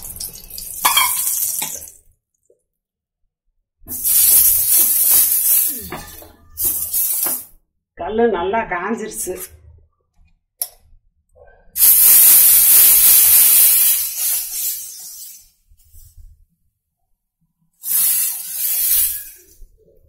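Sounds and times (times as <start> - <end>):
batter sizzling on hot griddle: 3.9 - 7.6, 11.8 - 15.5, 17.8 - 19.6.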